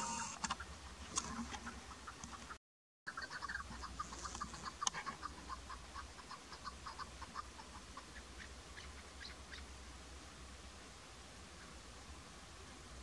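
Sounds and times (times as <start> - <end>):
partridge clucking calls: 0.0 - 9.7.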